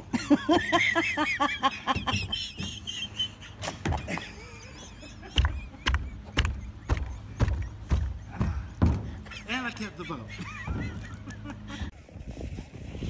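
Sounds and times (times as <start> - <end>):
heavy dull thumps: 5.4 - 9.3
kayak knocking against wooden dock: 5.4 - 9.3.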